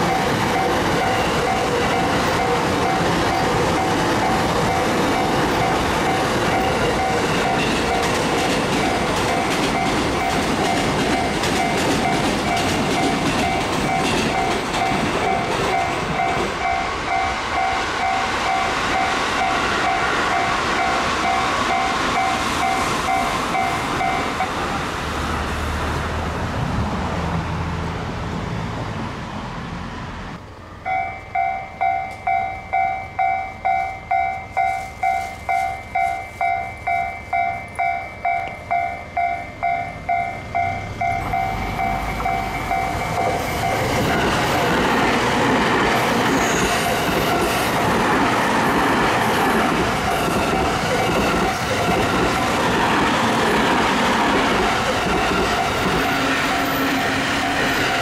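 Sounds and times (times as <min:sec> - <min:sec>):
train passing: 0:00.0 - 0:58.0
level crossing bell ringing: 0:30.9 - 0:43.8.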